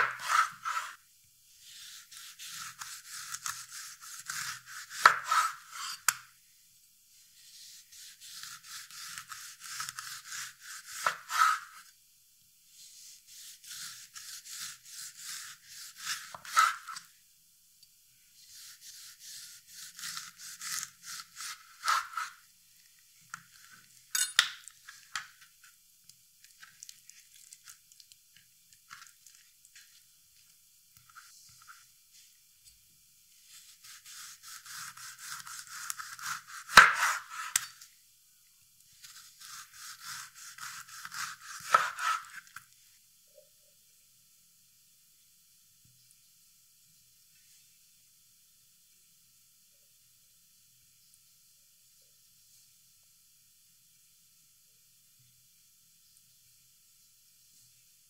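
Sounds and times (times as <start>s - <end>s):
knife slicing through orange: 0.0s - 1.0s, 1.7s - 6.3s, 7.4s - 11.9s, 13.0s - 17.1s, 18.5s - 22.4s, 33.4s - 37.8s, 39.0s - 42.6s.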